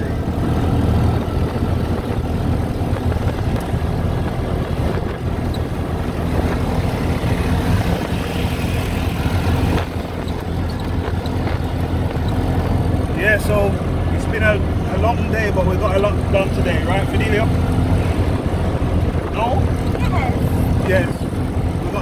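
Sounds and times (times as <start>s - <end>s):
auto-rickshaw engine running: 0.0s - 22.0s.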